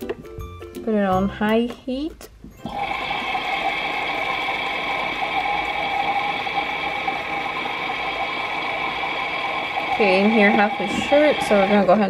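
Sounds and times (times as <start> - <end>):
held tones: 2.6 - 12.0
toy dryer whirring: 2.6 - 12.0.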